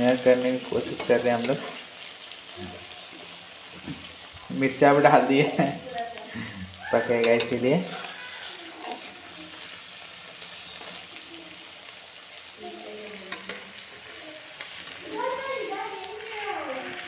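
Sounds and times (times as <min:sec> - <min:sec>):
food sizzling in oil: 0:00.0 - 0:17.0
metal spatula clicking on pan: 0:07.2 - 0:07.6, 0:13.3 - 0:13.8.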